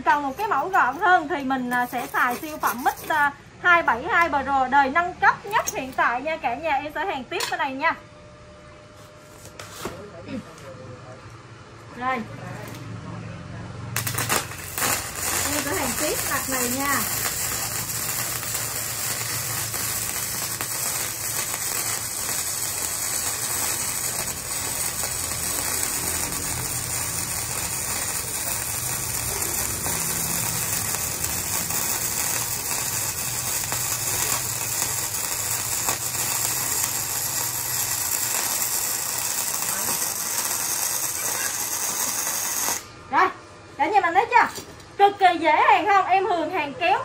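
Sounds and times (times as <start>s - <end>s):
welding arc crackling: 0.0s - 3.3s, 13.9s - 43.0s.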